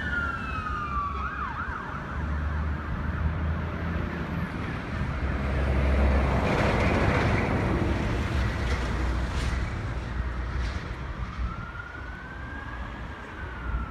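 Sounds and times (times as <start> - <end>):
distant siren wailing: 0.0 - 3.9, 10.0 - 13.9
wind noise on microphone: 6.1 - 13.9.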